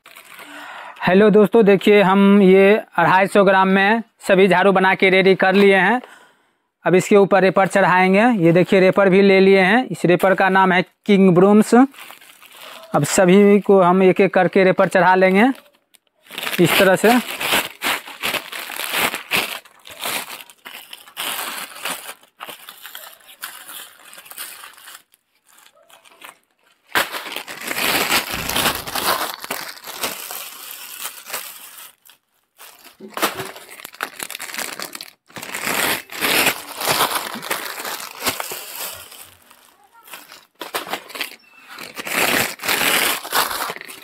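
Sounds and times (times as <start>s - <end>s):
plastic sleeves crinkling: 0.0s - 0.8s, 11.5s - 44.0s.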